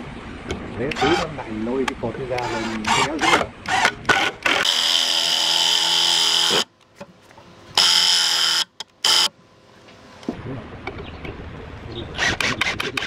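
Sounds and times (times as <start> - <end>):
impact driver driving screws: 2.4 - 6.7.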